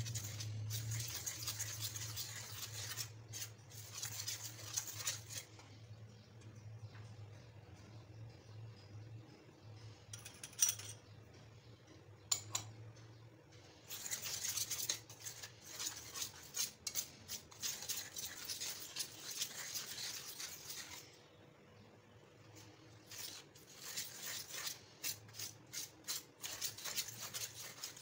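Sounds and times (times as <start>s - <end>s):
whisk scratching through flour: 0.0s - 5.6s, 13.8s - 21.2s, 22.4s - 28.0s.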